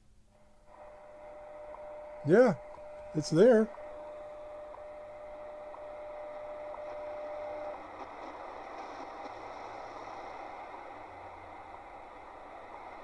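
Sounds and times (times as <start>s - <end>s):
radio static hiss: 0.0s - 13.0s
radio steady tone: 0.0s - 13.0s
faint ticks: 1.6s - 2.0s, 3.7s - 9.5s.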